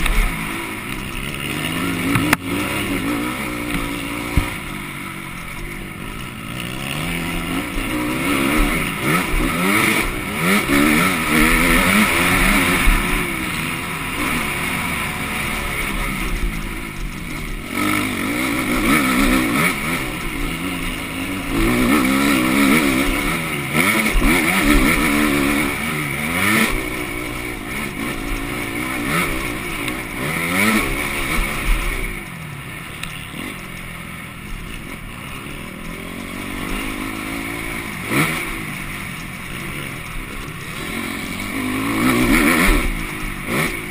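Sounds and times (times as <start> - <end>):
motocross bike engine revving: 0.0 - 43.9.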